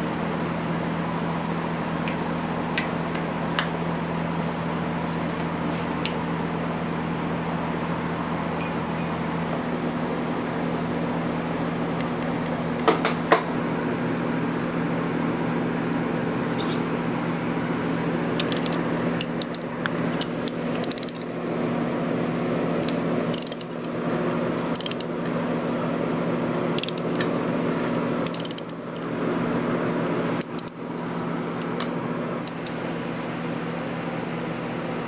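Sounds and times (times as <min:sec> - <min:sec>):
steady low hum: 0:00.0 - 0:35.0
ratchet wrench clicking: 0:19.2 - 0:19.6, 0:20.2 - 0:21.2, 0:23.3 - 0:23.8, 0:24.7 - 0:25.1, 0:26.8 - 0:27.2, 0:28.2 - 0:29.0, 0:30.4 - 0:30.8.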